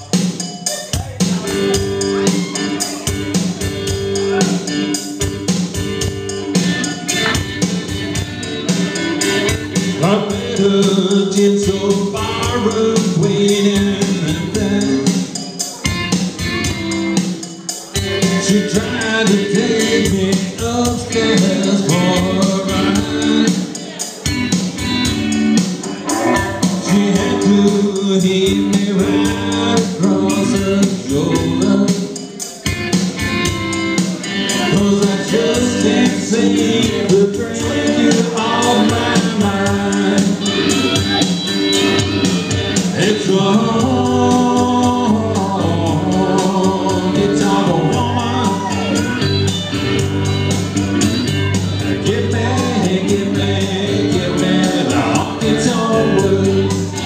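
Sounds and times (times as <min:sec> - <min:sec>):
amplified backing music: 0:00.0 - 0:57.0
man singing into microphone: 0:09.9 - 0:15.5, 0:18.1 - 0:24.2, 0:26.0 - 0:32.3, 0:34.4 - 0:41.4, 0:42.8 - 0:49.2, 0:51.8 - 0:57.0.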